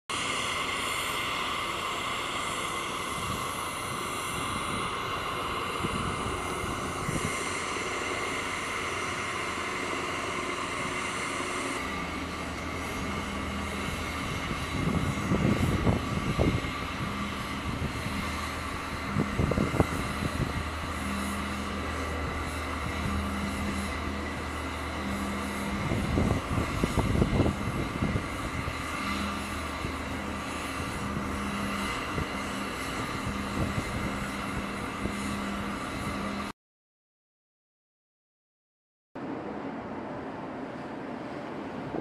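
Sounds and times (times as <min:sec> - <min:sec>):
aircraft turbine engines whining: 0:00.1 - 0:36.5, 0:39.2 - 0:42.0
low steady drone: 0:00.1 - 0:36.5
loud gusty rumbles: 0:03.2 - 0:36.4.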